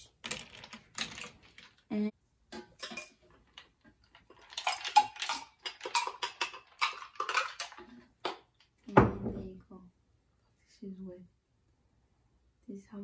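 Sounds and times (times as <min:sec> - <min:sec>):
ice clinking while pouring: 0:02.6 - 0:08.5
spoon clinking in a pitcher: 0:04.3 - 0:08.0.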